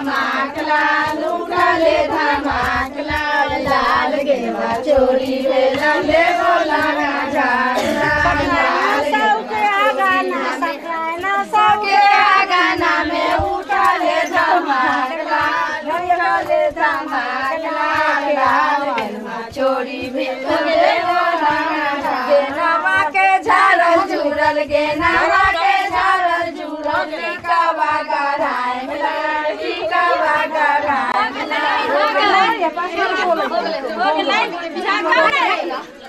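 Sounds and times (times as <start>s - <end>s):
women singing folk song together: 0.0s - 36.0s.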